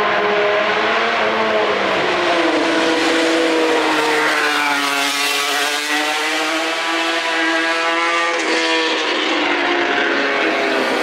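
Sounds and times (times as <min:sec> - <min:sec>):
racing motorcycle passing: 0:00.0 - 0:11.0.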